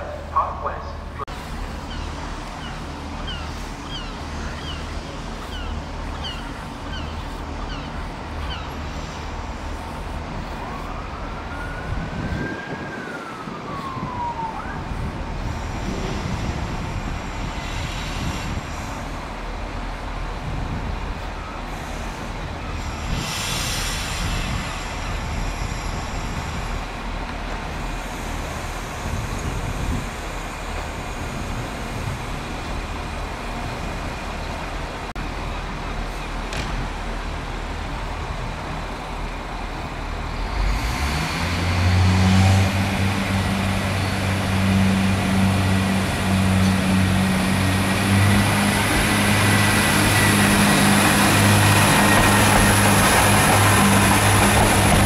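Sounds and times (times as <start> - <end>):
idling train rumble: 0.0 - 55.0
siren wailing: 10.6 - 15.2.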